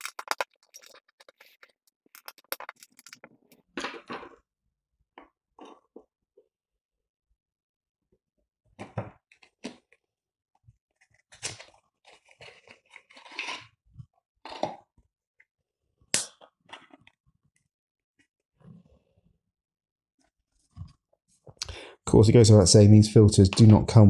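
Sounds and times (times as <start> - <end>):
small parts clicking and tapping: 0.0 - 3.6.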